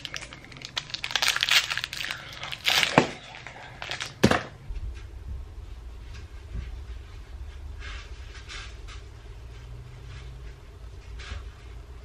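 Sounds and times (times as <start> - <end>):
plastic wrapper crinkling: 0.0 - 4.3
low steady hum: 0.0 - 12.0.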